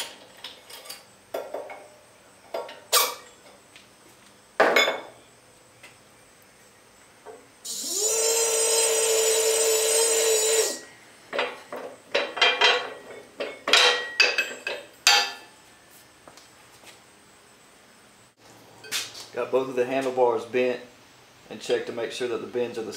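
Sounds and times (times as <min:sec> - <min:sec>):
metal squeal of pipe bender: 0:07.7 - 0:10.9
metal clanks and knocks: 0:11.3 - 0:15.4.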